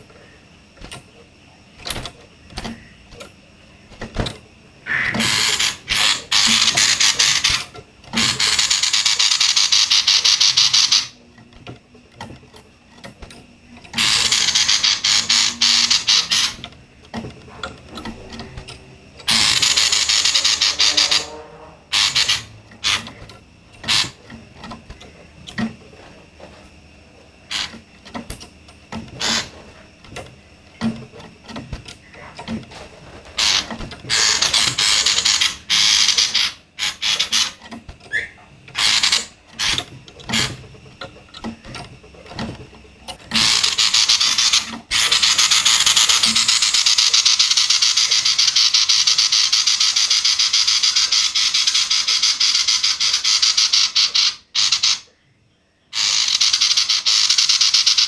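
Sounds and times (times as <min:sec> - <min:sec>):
bird rattling calls: 0:04.8 - 0:11.2, 0:13.9 - 0:16.7, 0:19.2 - 0:21.3, 0:21.9 - 0:25.1, 0:27.5 - 0:27.8, 0:29.2 - 0:29.6, 0:32.0 - 0:40.6, 0:43.3 - 0:55.1, 0:55.9 - 0:58.0.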